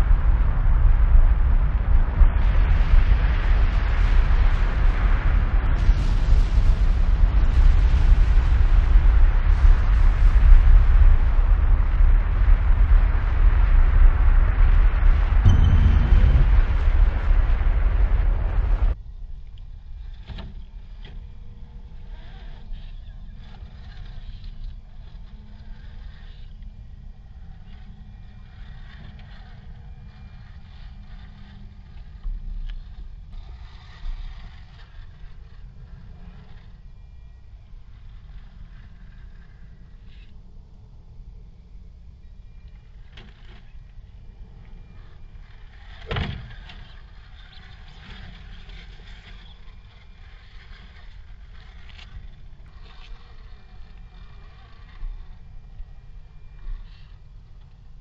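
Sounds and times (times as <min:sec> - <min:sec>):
low thumps: 0:00.0 - 0:19.0
wind rumbling on microphone: 0:00.0 - 0:58.0
sharp knock: 0:15.4 - 0:18.9
electric motor whine: 0:20.0 - 0:58.0.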